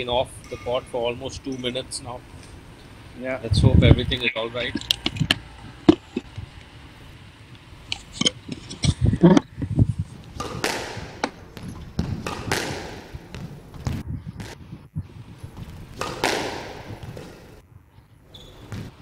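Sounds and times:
squash ball knocks echoing: 10.4 - 14.6, 15.9 - 17.5.

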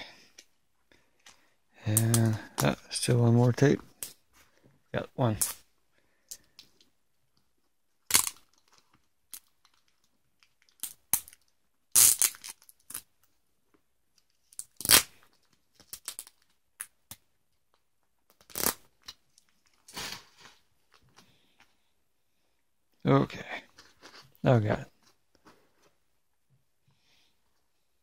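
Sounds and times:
adhesive tape ripping: 8.1 - 8.5, 10.8 - 13.1, 14.6 - 15.2, 18.3 - 19.1.

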